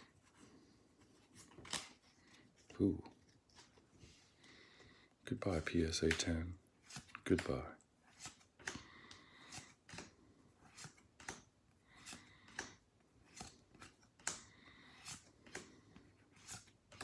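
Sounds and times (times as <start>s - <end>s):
trading cards snapping and swishing: 1.4s - 2.0s, 6.9s - 15.8s.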